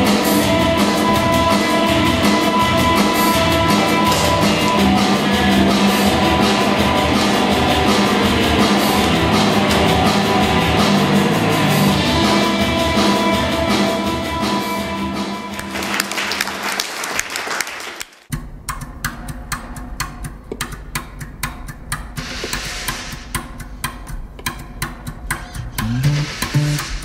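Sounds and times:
music with drums and held tones: 0.0 - 16.0, 18.3 - 27.0
small audience applauding: 15.2 - 18.3.

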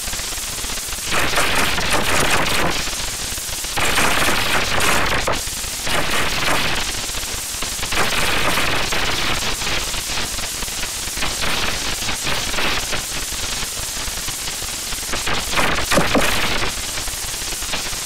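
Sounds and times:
distorted crackling static: 1.0 - 3.1, 3.8 - 7.1, 15.1 - 17.1.

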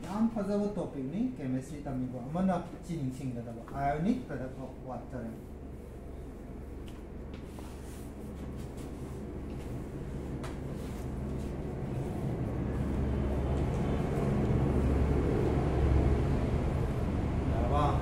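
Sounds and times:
low engine hum: 5.4 - 18.0.

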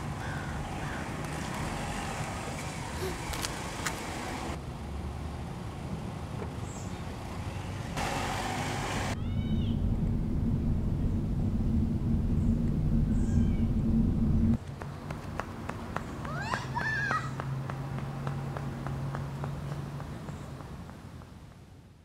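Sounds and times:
car engine and tyre noise: 0.0 - 22.0
high wavering wail: 9.2 - 14.6.

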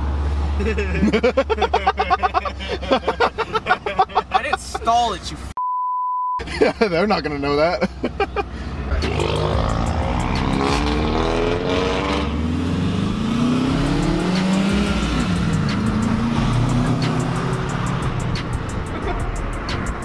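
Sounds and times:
car engine accelerating: 8.8 - 20.0.

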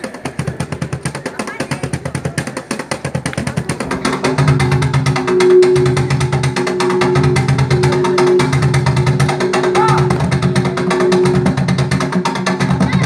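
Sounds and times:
box drums played together: 0.0 - 13.0
music with pulsing bass: 3.2 - 13.0.

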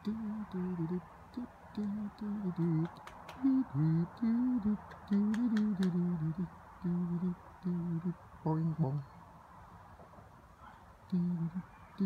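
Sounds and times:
person humming a tune: 0.0 - 9.0, 11.1 - 11.6
faint clicks: 1.8 - 3.6, 4.6 - 6.1.

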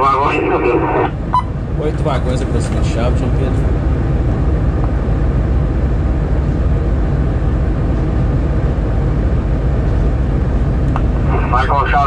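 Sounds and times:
diesel locomotive engine rumbling: 0.0 - 12.0.

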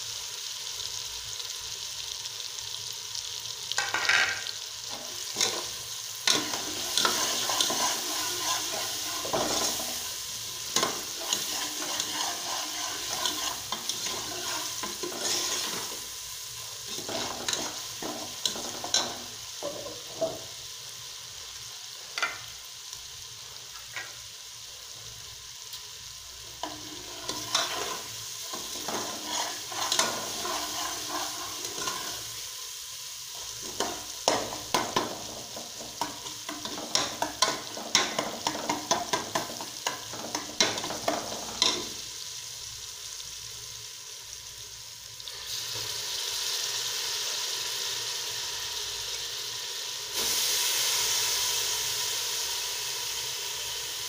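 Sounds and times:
onions sizzling in hot oil: 0.0 - 54.0
rice sizzling in oil: 0.0 - 54.0
ladle scraping and clinking pot: 10.8 - 15.9, 26.6 - 32.2.

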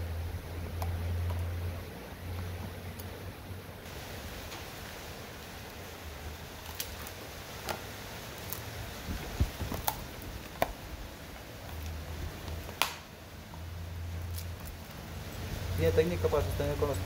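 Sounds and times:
dog chewing crunches: 6.6 - 13.0.

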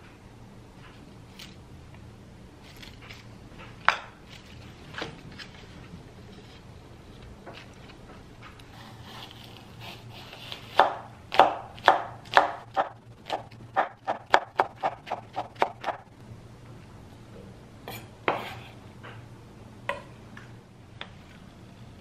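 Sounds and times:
knife chopping on wooden board: 10.4 - 16.0, 18.3 - 18.6.

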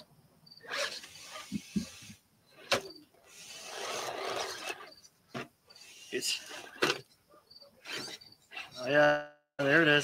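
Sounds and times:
tires scrabbling on rock: 2.6 - 5.0.

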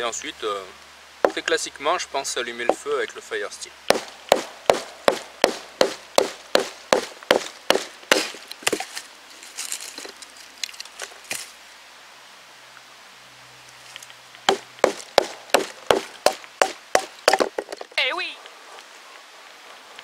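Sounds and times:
wood cracking: 1.2 - 1.6, 3.9 - 11.6, 13.9 - 18.0
baton knocking on knife spine: 1.3 - 1.5, 3.9 - 8.9, 14.5 - 17.9.

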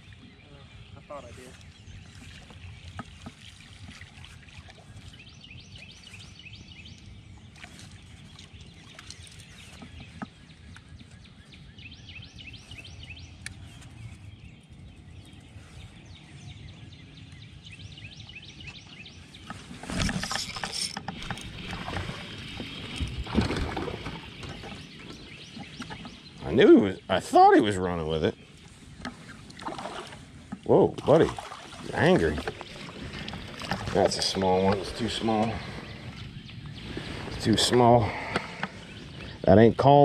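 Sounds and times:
wind rumble on microphone: 4.7 - 27.0, 31.9 - 39.8.

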